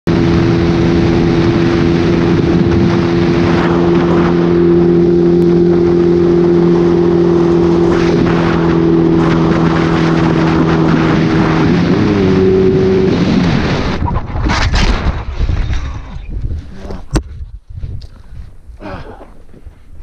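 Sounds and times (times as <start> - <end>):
motorcycle engine cruising: 0.1 - 14.0
wind and road noise: 0.1 - 20.0.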